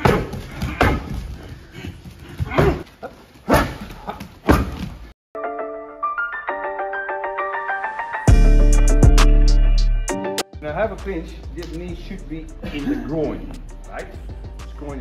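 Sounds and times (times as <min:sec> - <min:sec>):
melody of stepped notes: 0:05.4 - 0:10.5.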